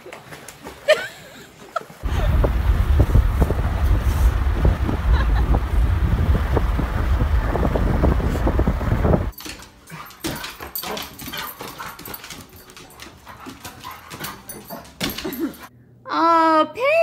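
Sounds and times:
wind and road noise: 2.0s - 9.4s.

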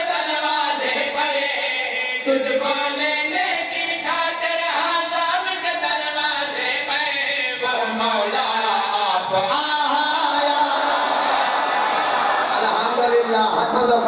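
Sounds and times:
person chanting into a microphone: 0.0s - 10.8s.

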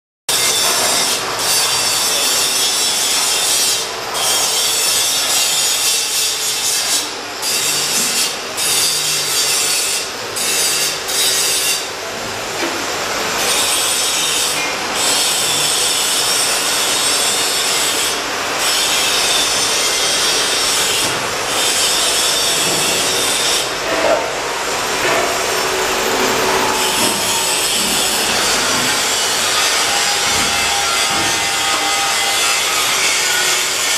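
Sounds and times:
angle grinder grinding steel: 13.4s - 33.9s.

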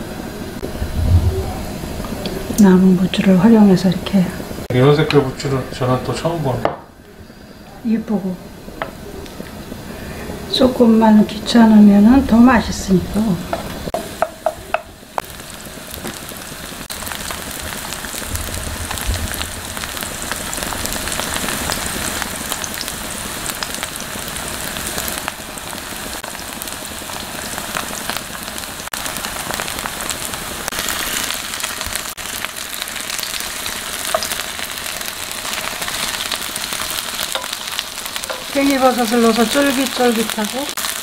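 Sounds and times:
pancakes sizzling in hot oil: 13.5s - 41.0s.

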